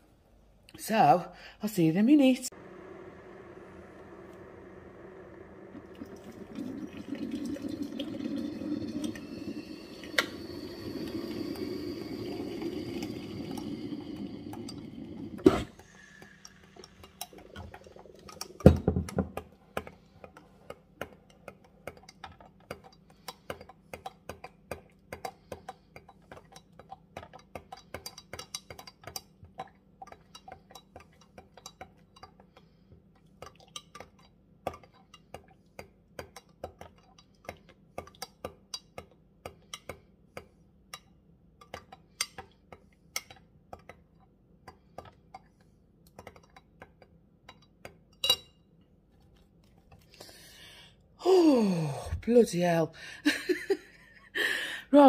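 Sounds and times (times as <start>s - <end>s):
water pouring into a glass jug: 5.0s - 19.0s
spoon clinking against glass jug: 47.5s - 48.6s.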